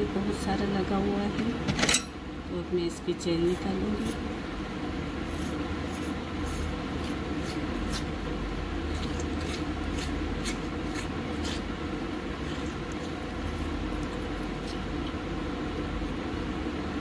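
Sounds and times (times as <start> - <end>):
low background hum: 0.0 - 17.0
fork scraping aloe leaf: 3.4 - 4.3, 5.2 - 8.2, 8.8 - 14.9.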